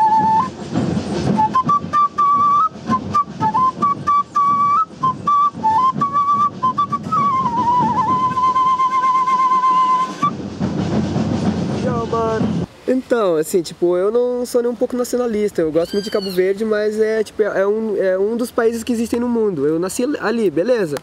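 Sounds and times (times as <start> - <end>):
notch flute melody: 0.0 - 12.7, 15.8 - 16.5.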